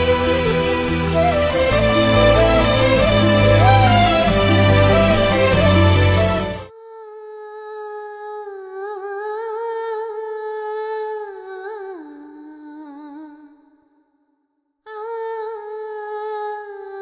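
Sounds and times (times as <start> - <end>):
background music: 0.0 - 6.7.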